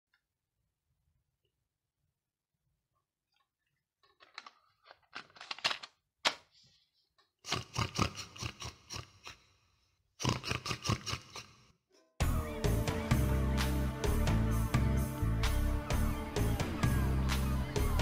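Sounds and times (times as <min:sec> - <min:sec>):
plastic cassette clicks and rattles: 0:04.0 - 0:06.4.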